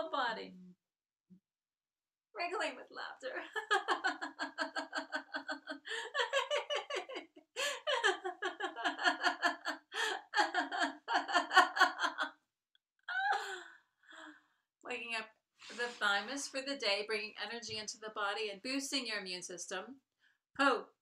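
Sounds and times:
woman laughing heartily: 0:03.5 - 0:12.3, 0:13.1 - 0:13.7.

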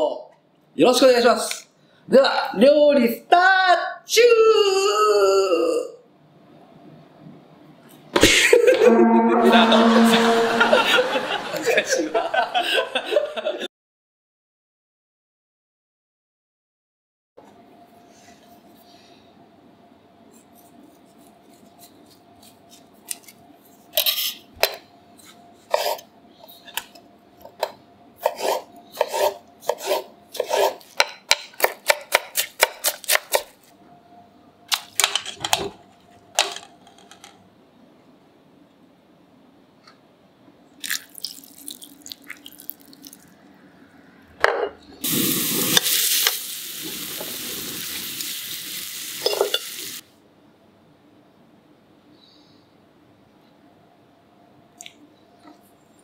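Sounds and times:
knife chopping on wooden board: 0:28.2 - 0:33.5
meat sizzling in oil: 0:45.0 - 0:50.0.

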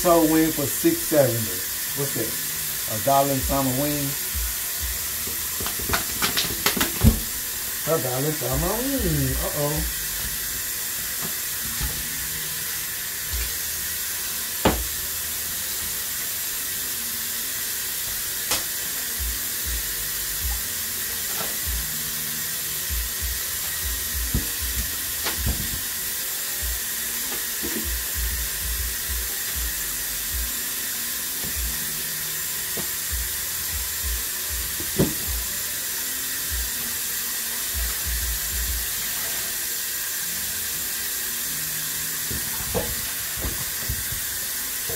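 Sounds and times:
tap running into metal sink: 0:05.2 - 0:07.5, 0:14.6 - 0:14.9, 0:27.3 - 0:27.9, 0:34.8 - 0:35.3, 0:42.3 - 0:44.3
knocks against sink: 0:14.7 - 0:14.9.

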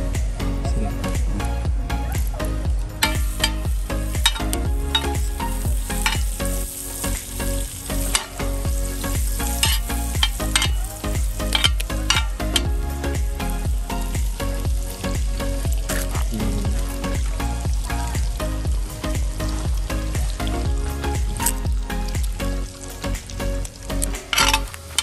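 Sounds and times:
metal spoon scraping a pan: 0:03.0 - 0:05.2, 0:05.9 - 0:06.6, 0:08.0 - 0:08.5, 0:09.1 - 0:12.7, 0:24.3 - 0:25.0
butter sizzling in a pan: 0:03.0 - 0:16.1, 0:16.8 - 0:25.0.

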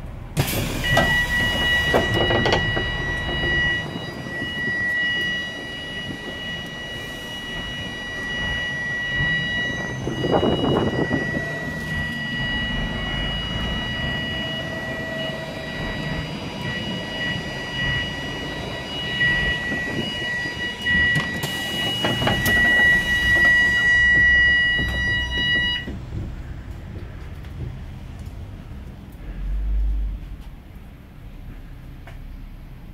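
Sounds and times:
bus engine idling: 0:00.0 - 0:32.9
high-pitched electronic warning tone: 0:00.6 - 0:25.9.

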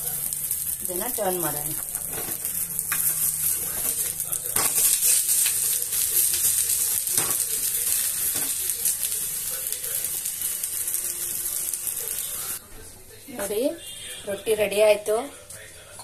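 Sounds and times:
flatbread sizzling on a pan: 0:00.0 - 0:12.6
spatula scraping a pan: 0:02.0 - 0:05.5.

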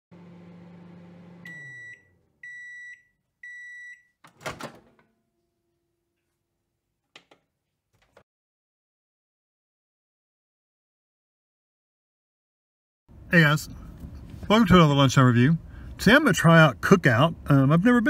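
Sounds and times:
microwave oven humming: 0:00.1 - 0:02.8
high microwave beeps: 0:01.4 - 0:04.2.

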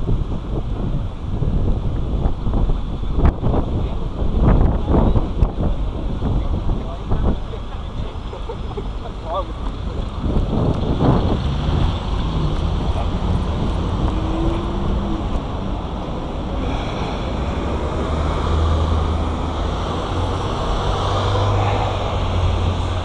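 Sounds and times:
bus and cars running: 0:00.0 - 0:23.0
wind rumbling on microphone: 0:00.0 - 0:23.0.

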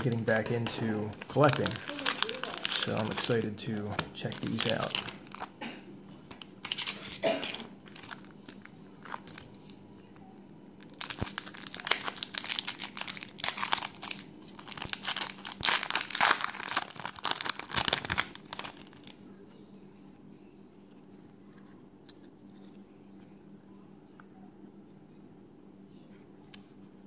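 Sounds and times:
foil wrappers crinkling and tearing: 0:00.0 - 0:05.6, 0:06.3 - 0:09.8, 0:10.8 - 0:19.2.

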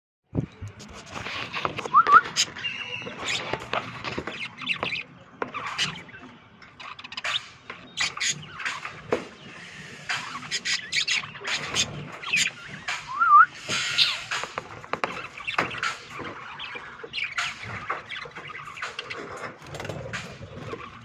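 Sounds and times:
budgerigars chattering: 0:02.2 - 0:21.0
warbling whistle: 0:13.1 - 0:13.6.

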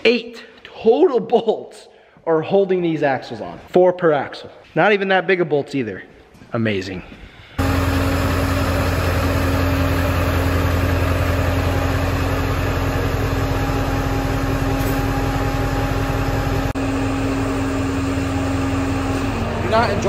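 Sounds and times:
fuel pump humming: 0:07.6 - 0:20.0.

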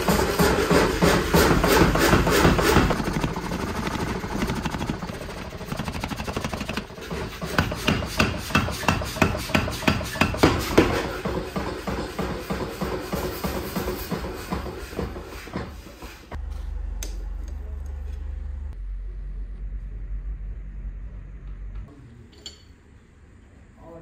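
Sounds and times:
power hammer pounding steel: 0:00.0 - 0:15.7.

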